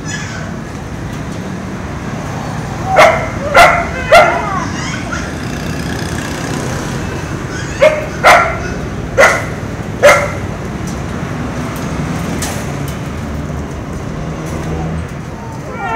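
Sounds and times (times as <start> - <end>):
dog barking: 2.8 - 5.3, 7.6 - 10.4.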